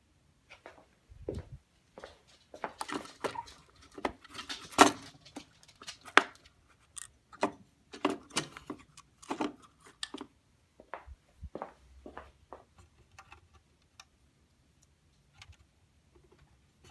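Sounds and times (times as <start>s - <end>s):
plastic toy parts clicking: 2.8s - 10.3s.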